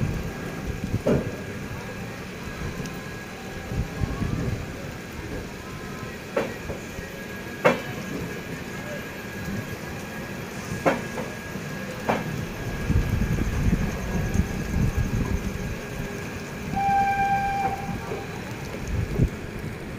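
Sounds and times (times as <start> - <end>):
train wheels rumbling on track: 0.0 - 19.9
locomotive horn: 16.7 - 18.4.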